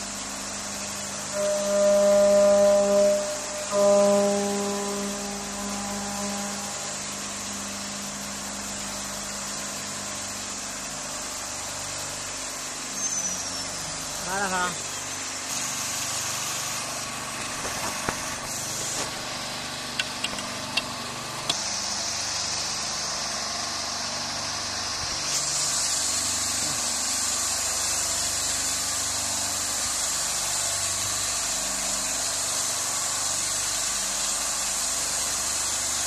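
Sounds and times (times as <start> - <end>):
woodworking machinery running: 0.0 - 36.0
sharp clicks: 20.0 - 20.9.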